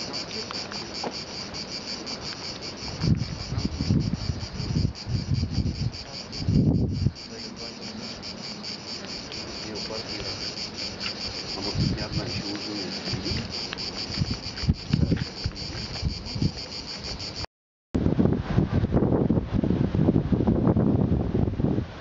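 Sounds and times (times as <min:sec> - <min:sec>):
wind buffeting microphone: 0:00.0 - 0:17.4, 0:18.0 - 0:22.0
cicadas buzzing: 0:00.0 - 0:17.5.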